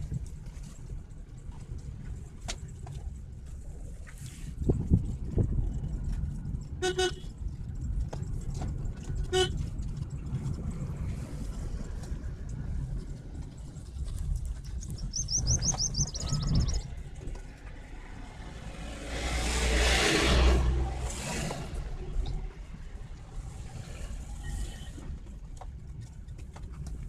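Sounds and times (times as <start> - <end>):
road and engine rumble: 0.0 - 27.0
high chirps: 15.0 - 16.9
bus passing close: 17.9 - 22.6.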